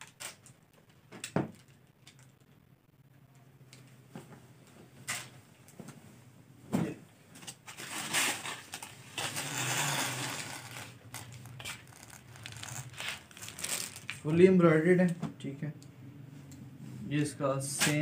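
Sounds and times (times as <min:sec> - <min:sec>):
cloth rustling: 0:07.8 - 0:14.3.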